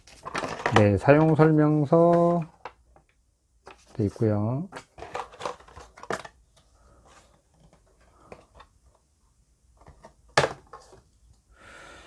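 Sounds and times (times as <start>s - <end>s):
paper and cardboard rustling: 0.0s - 1.4s, 3.6s - 6.3s.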